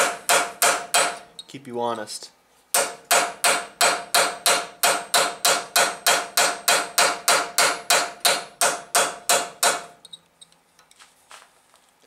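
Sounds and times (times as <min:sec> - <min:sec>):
hammer striking metal chisel: 0:00.0 - 0:01.5, 0:02.7 - 0:10.2.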